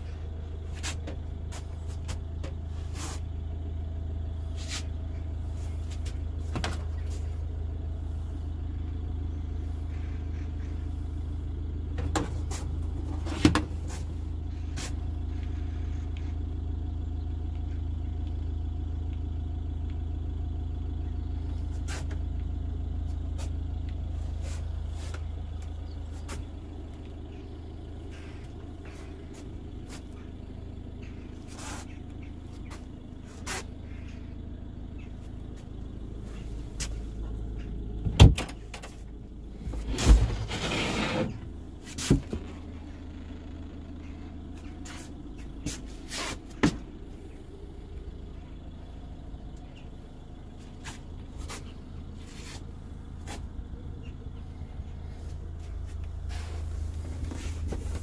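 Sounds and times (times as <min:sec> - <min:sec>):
steady low hum: 0:00.0 - 0:58.0
drawer sliding open: 0:39.9 - 0:41.4.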